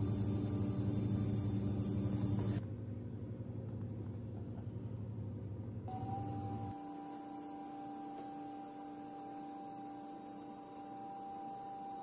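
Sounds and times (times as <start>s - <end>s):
electric motor gear hum: 0.0s - 2.6s, 5.9s - 12.0s.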